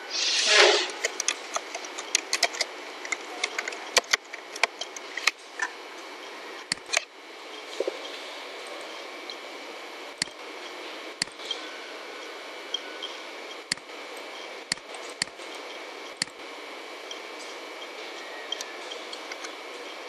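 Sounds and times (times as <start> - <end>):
microphone hiss: 0.0 - 1.5.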